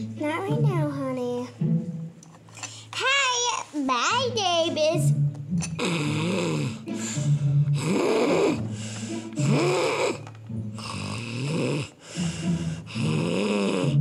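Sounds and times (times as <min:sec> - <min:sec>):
child imitating snoring: 0:05.6 - 0:14.0.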